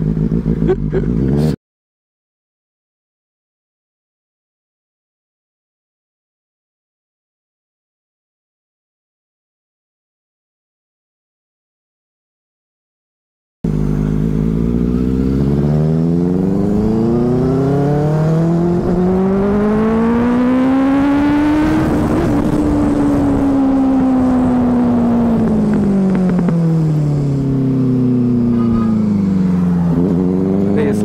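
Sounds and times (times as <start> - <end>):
motorcycle engine accelerating: 0.0 - 1.6, 13.7 - 31.0.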